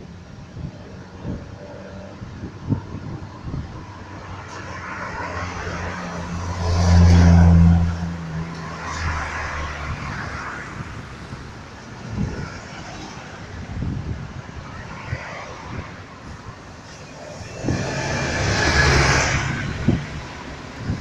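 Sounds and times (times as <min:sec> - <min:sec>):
cars driving by: 0:00.0 - 0:21.0
car engine drone passing close: 0:00.9 - 0:11.2, 0:15.4 - 0:21.0.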